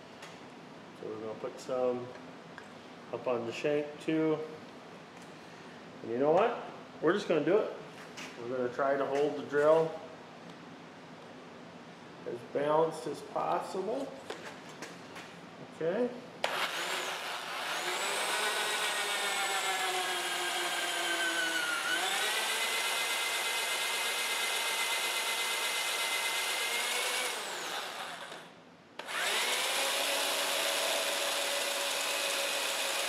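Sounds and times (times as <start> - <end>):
electric drill whining: 16.4 - 33.0.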